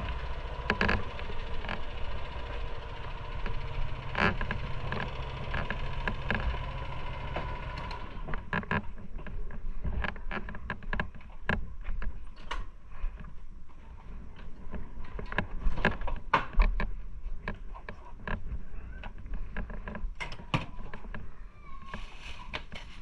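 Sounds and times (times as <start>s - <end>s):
motorcycle engine running slowly: 0.0s - 8.8s.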